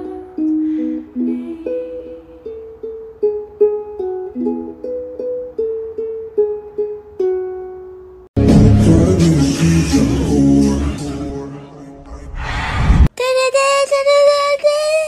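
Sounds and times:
plucked string instrument music: 0.0s - 11.3s.

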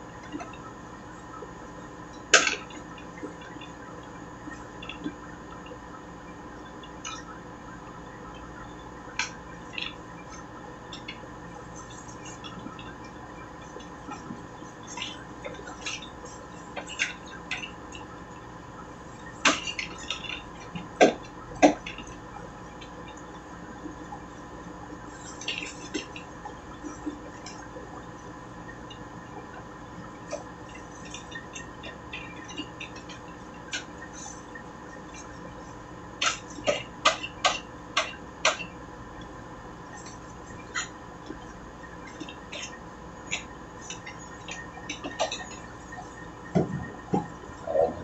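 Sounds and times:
low hum: 46.5s - 48.0s.

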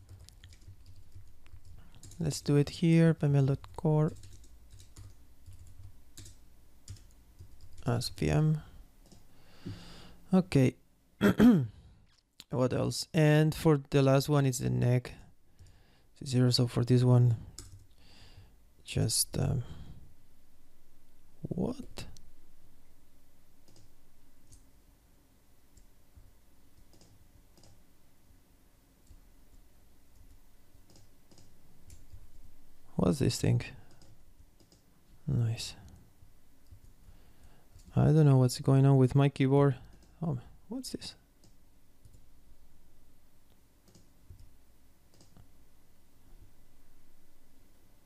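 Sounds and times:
computer keyboard key clicks: 43.9s - 44.1s, 45.1s - 45.4s.

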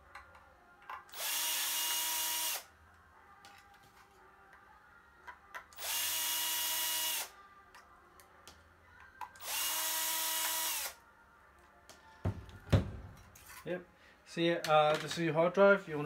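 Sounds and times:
cordless drill whining: 1.2s - 2.6s, 5.8s - 7.3s, 9.4s - 11.0s.

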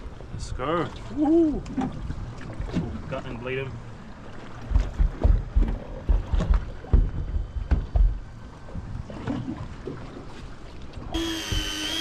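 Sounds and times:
water slapping against boat hull: 1.6s - 3.5s, 4.3s - 12.0s.

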